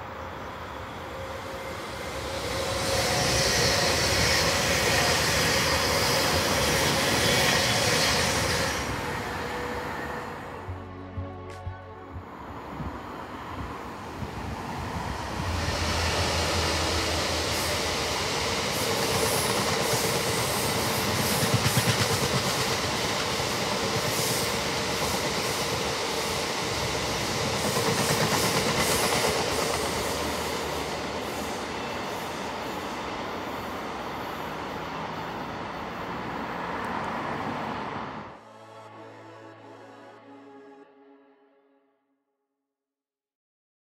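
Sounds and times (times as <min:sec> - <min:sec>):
diesel locomotive engine hum: 0:00.0 - 0:39.8
train wheels clattering on rails: 0:16.2 - 0:33.0.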